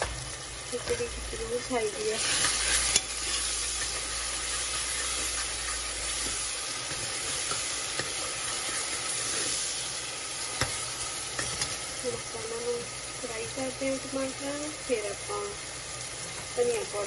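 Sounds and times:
vegetables sizzling in hot oil: 0.0 - 17.0
metal ladle scraping a pot: 2.2 - 9.8.

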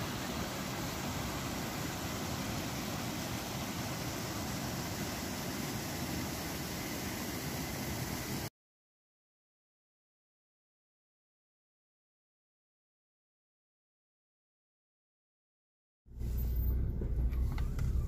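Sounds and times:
water rushing over weir: 0.0 - 8.5.

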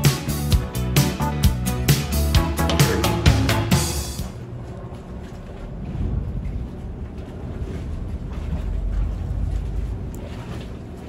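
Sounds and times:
ferry engines humming: 1.1 - 11.0
wind noise on microphone: 5.4 - 9.9.

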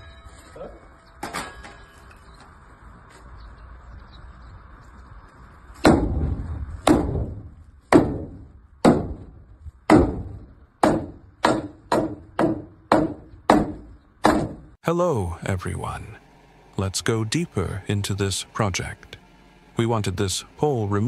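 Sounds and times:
hammer blows on wooden post: 9.9 - 14.7.

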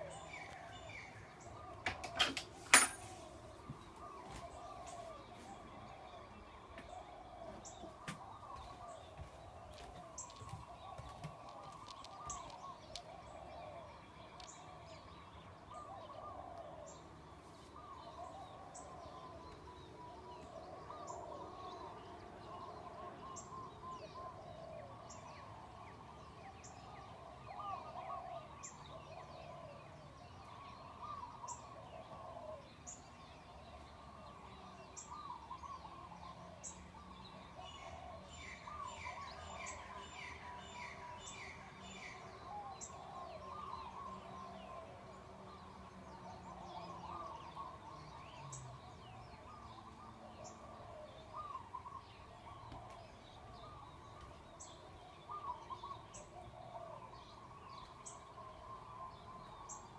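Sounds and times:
chorus of animals calling: 0.0 - 59.9.

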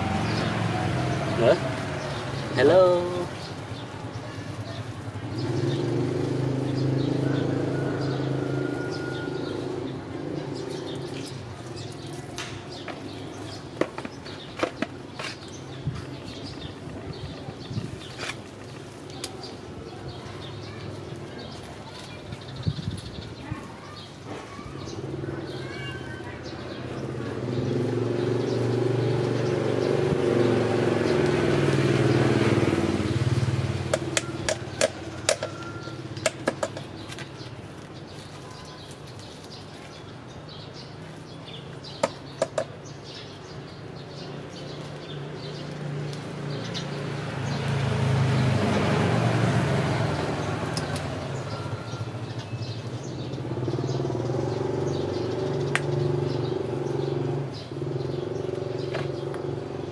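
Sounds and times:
passing vehicle engines droning: 0.0 - 13.7, 25.0 - 36.3, 43.5 - 59.9.

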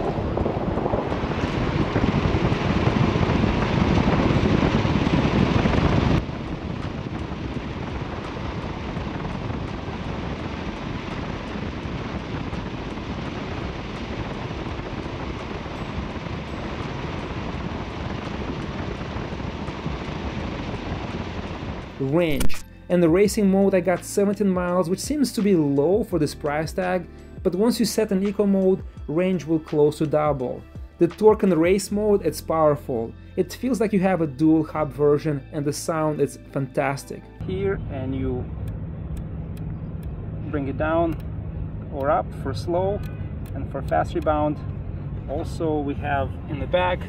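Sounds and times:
road noise: 0.0 - 26.0, 35.4 - 47.0
wind rushing over microphone: 0.0 - 26.8, 37.2 - 47.0.

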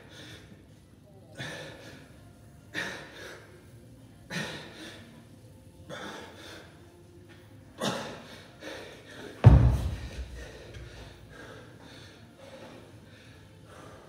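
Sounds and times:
man breathing hard: 7.8 - 14.0.

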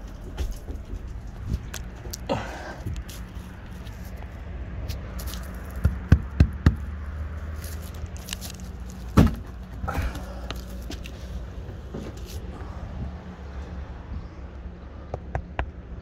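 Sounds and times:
footsteps on boat deck: 0.0 - 2.2.

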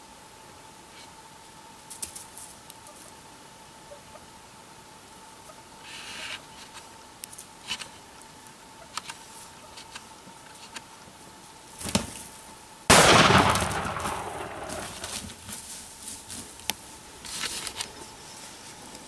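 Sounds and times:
shotgun shot: 12.9 - 15.3.

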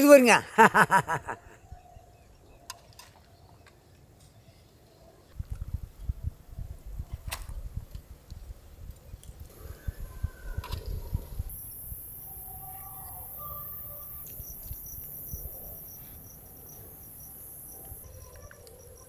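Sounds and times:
pulsing insect chirp: 9.6 - 19.0
crickets trilling: 10.9 - 19.0.

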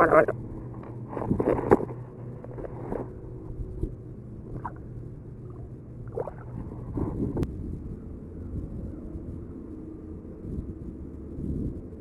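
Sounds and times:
steady low rumble: 0.0 - 12.0
water lapping against hull: 4.5 - 7.4.

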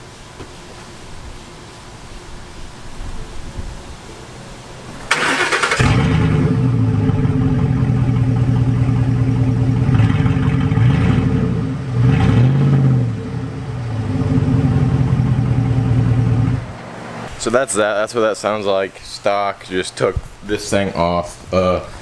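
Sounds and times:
engine cranking and starting: 5.0 - 8.2
engine idling: 5.1 - 17.2
engine revving: 5.1 - 17.3.

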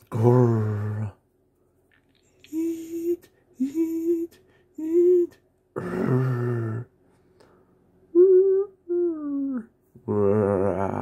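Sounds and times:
person imitating animal sounds: 0.0 - 1.2, 2.4 - 6.9, 8.1 - 11.0.

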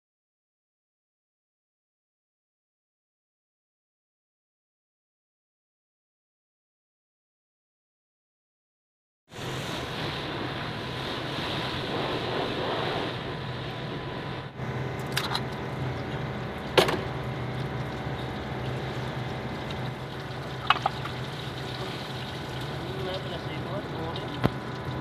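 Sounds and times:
background hum: 9.4 - 25.0.

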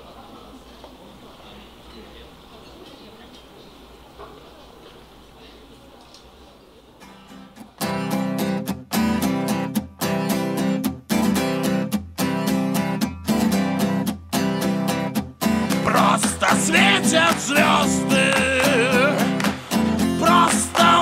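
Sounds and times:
strummed guitar chords: 7.1 - 21.0
person singing: 15.6 - 21.0.

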